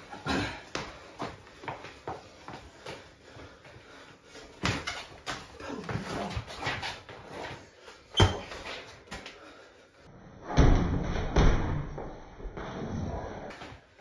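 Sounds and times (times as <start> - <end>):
footwork on wooden floor: 0.0 - 9.8.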